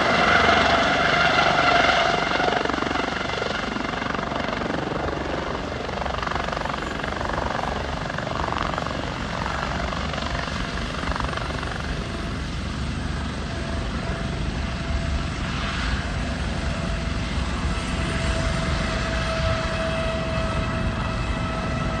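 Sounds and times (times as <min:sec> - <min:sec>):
helicopter turbine and rotor: 0:00.0 - 0:22.0.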